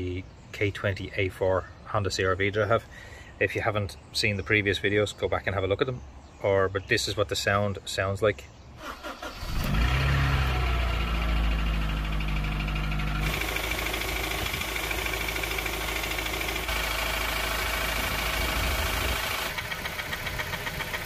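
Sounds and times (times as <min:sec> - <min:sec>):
car engine idling: 0:09.2 - 0:21.0
fast knocking tapping from engine: 0:18.8 - 0:21.0.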